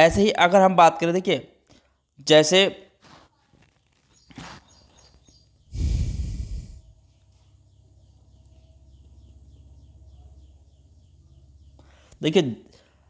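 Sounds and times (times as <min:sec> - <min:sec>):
breath blown into microphone: 0:05.7 - 0:06.9.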